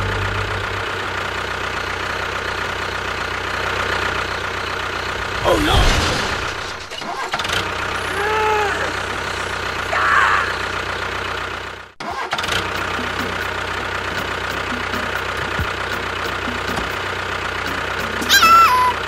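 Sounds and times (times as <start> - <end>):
tractor engine running: 0.0 - 19.0
short high falling cry: 8.0 - 9.2, 18.2 - 19.0.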